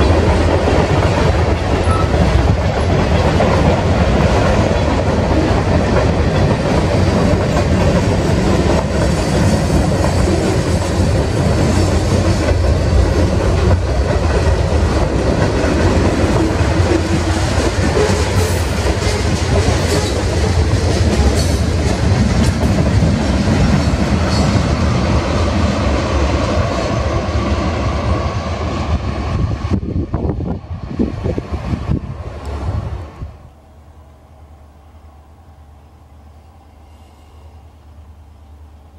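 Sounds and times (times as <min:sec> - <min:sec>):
freight train rumbling past: 0:00.0 - 0:38.9.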